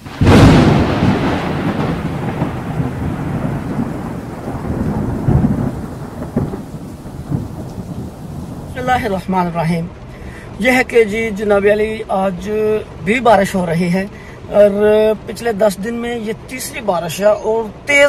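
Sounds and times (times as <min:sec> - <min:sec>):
thunder rumbling: 0:00.0 - 0:10.1
rain hissing: 0:00.0 - 0:17.1.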